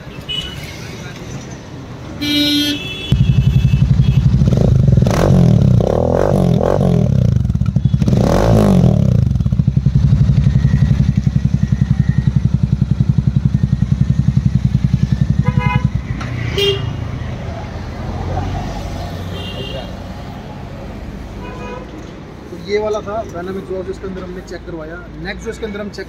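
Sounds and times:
motorcycle engine revving and idling: 3.1 - 20.0.

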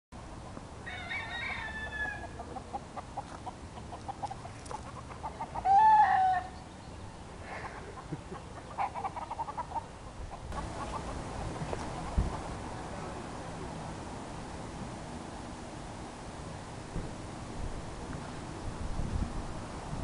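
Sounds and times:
chicken calls: 0.9 - 6.6, 7.4 - 12.5
chickens clucking: 1.5 - 6.6, 7.4 - 12.9.

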